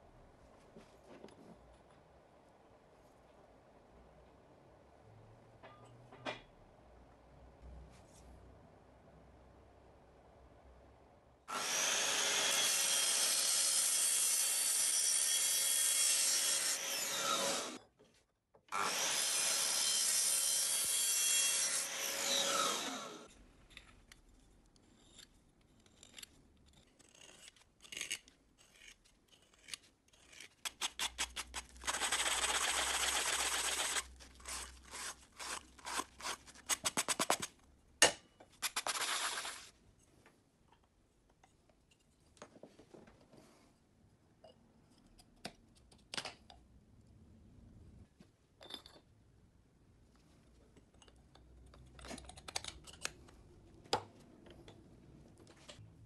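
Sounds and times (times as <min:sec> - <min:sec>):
miter saw cutting metal tube: 0:11.5 - 0:17.8, 0:18.7 - 0:23.3.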